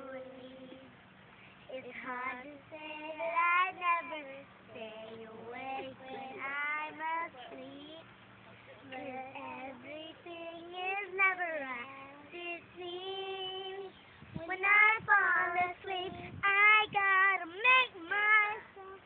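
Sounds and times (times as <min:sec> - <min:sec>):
girl singing: 0:00.0 - 0:01.0, 0:01.7 - 0:08.1, 0:08.9 - 0:19.0.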